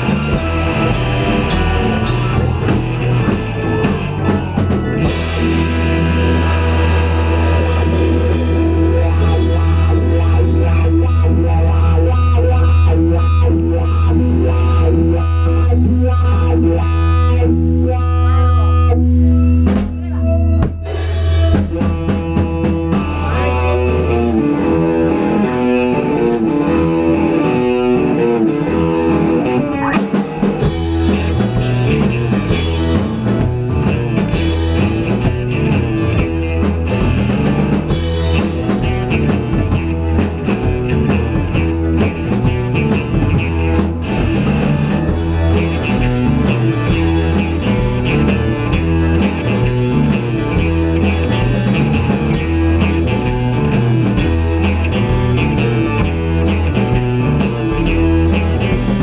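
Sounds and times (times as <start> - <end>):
rock band playing live: 0.0 - 59.0.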